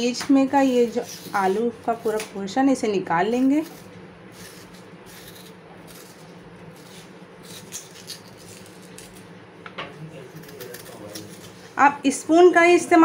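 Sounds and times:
spoon scraping potato: 0:00.5 - 0:02.3, 0:03.2 - 0:09.2.

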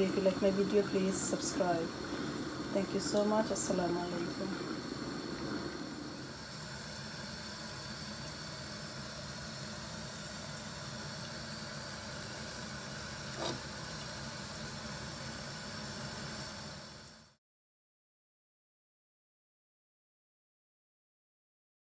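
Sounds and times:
pot simmering on stove: 0:00.0 - 0:17.4.

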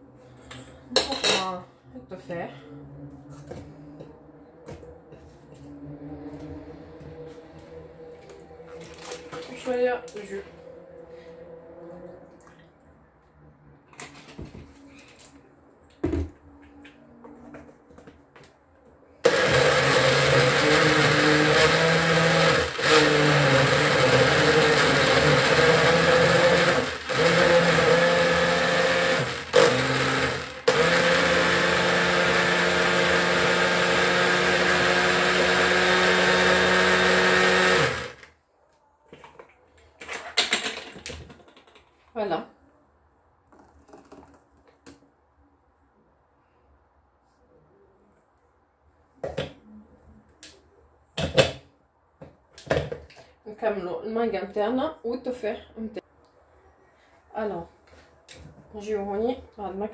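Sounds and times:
blender running: 0:19.2 - 0:38.2.

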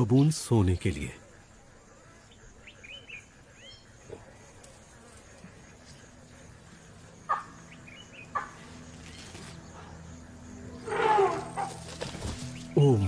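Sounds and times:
birds calling: 0:00.0 - 0:13.0
wavering animal call: 0:10.7 - 0:11.9.

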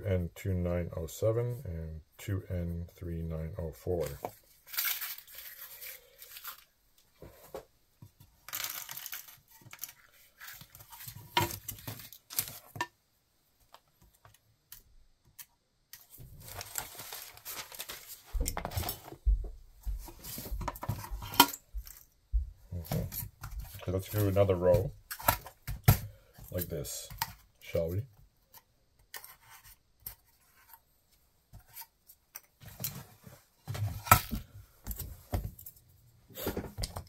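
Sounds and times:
scraping and rustling paper: 0:04.0 - 0:07.6, 0:16.0 - 0:19.2.

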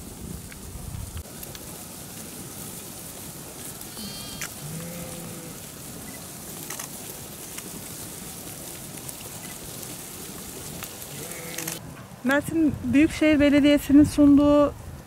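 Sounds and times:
sheep tearing and crunching grass: 0:01.2 - 0:12.3
sheep bleating: 0:04.0 - 0:05.7, 0:11.1 - 0:11.8.

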